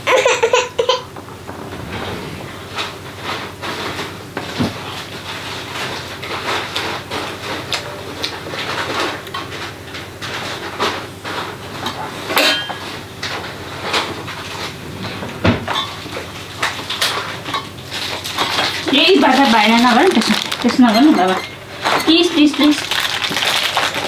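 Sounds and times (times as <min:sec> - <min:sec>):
spoons clinking on steel plates: 0:12.4 - 0:12.8, 0:20.7 - 0:22.8.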